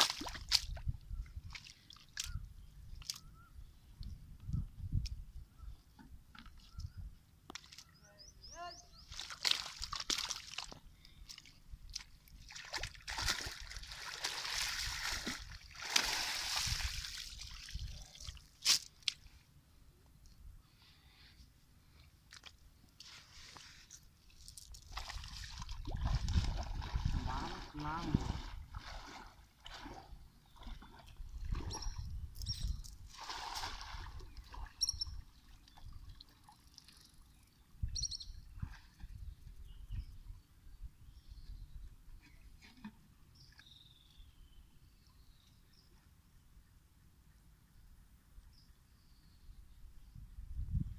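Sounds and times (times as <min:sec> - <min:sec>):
feet splashing through water: 0:00.0 - 0:00.8, 0:01.4 - 0:02.3, 0:09.1 - 0:19.2, 0:24.8 - 0:32.1, 0:33.1 - 0:34.8
bird chirping: 0:07.8 - 0:09.2, 0:31.7 - 0:32.9, 0:34.8 - 0:36.0, 0:36.9 - 0:38.6.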